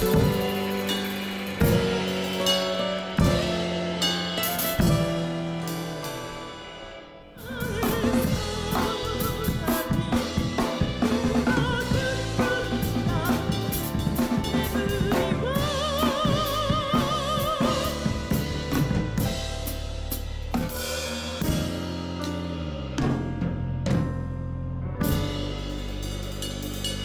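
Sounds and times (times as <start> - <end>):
drum kit playing: 0.0 - 27.0
person singing a melody: 7.4 - 18.7.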